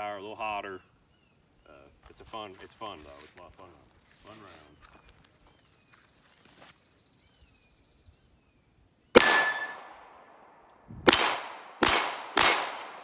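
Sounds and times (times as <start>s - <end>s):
steel target ringing: 9.2s - 9.9s, 11.1s - 13.0s
pistol shots: 9.2s - 13.0s.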